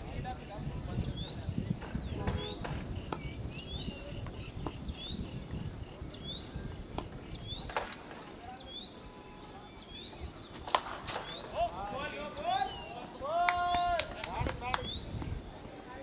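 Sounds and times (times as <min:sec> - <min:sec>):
high-pitched insect drone: 0:00.0 - 0:07.8.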